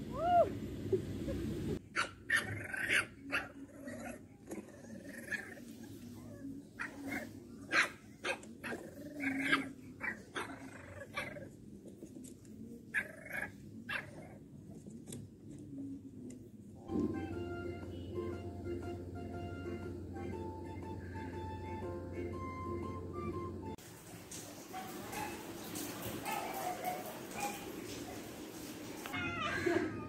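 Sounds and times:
puppies growling: 2.3s - 12.3s, 12.9s - 14.8s.

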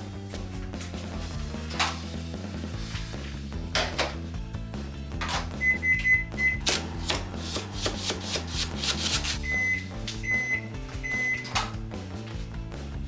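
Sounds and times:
long microwave beeps: 5.6s - 6.6s, 9.5s - 11.5s
microwave keypad beeps: 5.6s - 6.6s, 9.5s - 11.6s
knife chopping on a wooden board: 6.6s - 9.4s.

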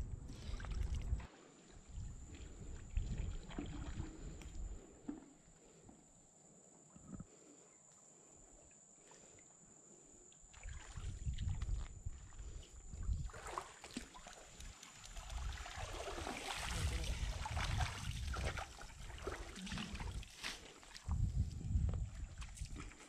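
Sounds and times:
low rumble on microphone: 0.0s - 1.3s, 1.9s - 4.9s, 11.0s - 13.3s, 21.0s - 22.9s
water splashing and trickling: 0.3s - 5.2s, 10.5s - 23.0s
cast net hauled out of water: 13.2s - 21.0s.

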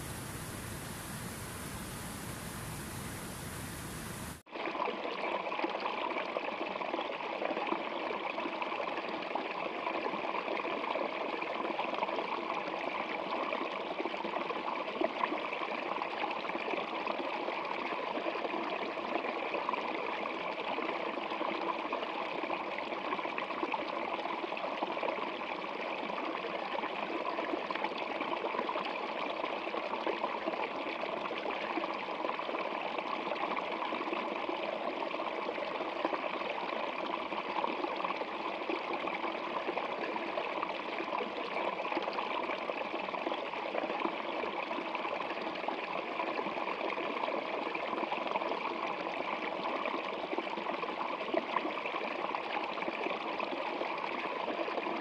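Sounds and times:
running water: 0.0s - 4.4s.

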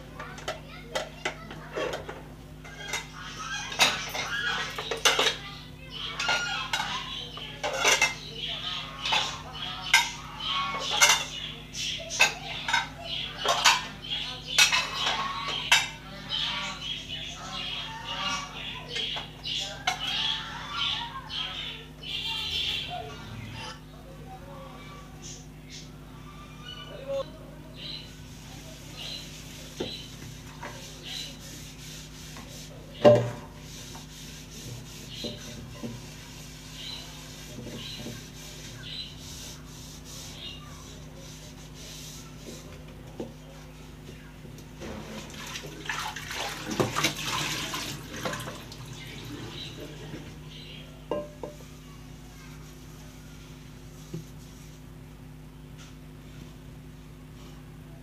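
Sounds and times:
scrubbing a frying pan: 0.5s - 11.5s, 12.1s - 21.5s, 27.8s - 44.0s, 44.8s - 54.9s
plates clinking in dish rack: 3.7s - 5.5s, 7.6s - 8.2s, 10.8s - 11.4s, 51.1s - 51.6s
knocks in a metal sink: 33.0s - 33.4s.

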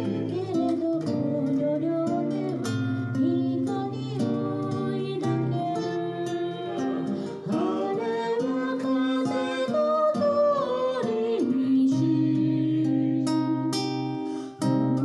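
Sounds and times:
acoustic guitar chords: 0.0s - 15.0s
man singing: 4.4s - 13.4s.

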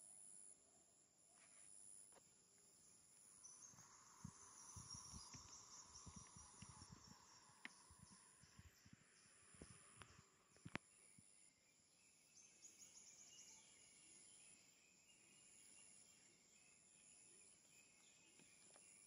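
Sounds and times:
insect high trill: 3.2s - 10.4s.

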